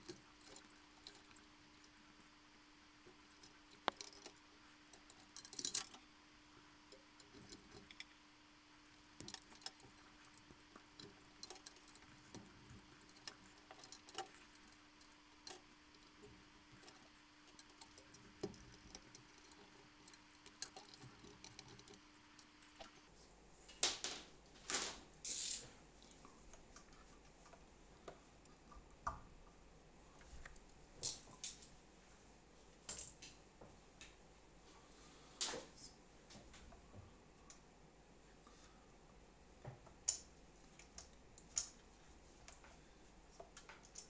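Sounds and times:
light clicks of air fittings: 0.0 - 2.3, 3.0 - 8.2, 8.9 - 23.1.

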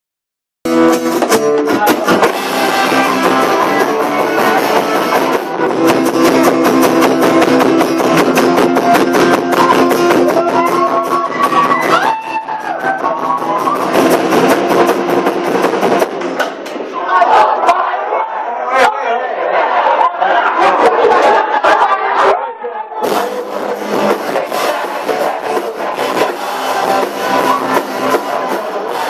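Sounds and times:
strummed guitar: 0.7 - 16.4, 23.0 - 29.0
live rock band playing: 0.7 - 16.5, 23.0 - 29.0.

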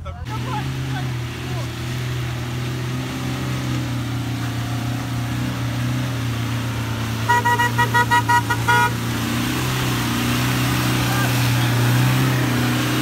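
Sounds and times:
engine running: 0.0 - 13.0
car horn short toots: 7.3 - 9.0.

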